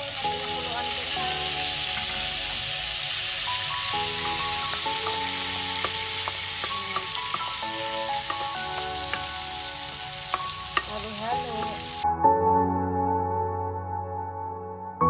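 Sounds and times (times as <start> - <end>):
potatoes sizzling in a frying pan: 0.0 - 12.0
soft background music: 0.0 - 15.0
wooden spatula clicking against pan: 4.2 - 9.4, 10.3 - 11.0.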